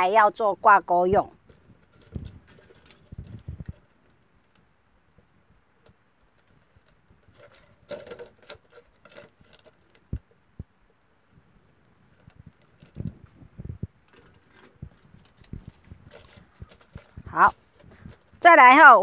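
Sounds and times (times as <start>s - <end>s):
plastic bottle crinkling: 5.8s - 10.3s, 11.8s - 18.4s.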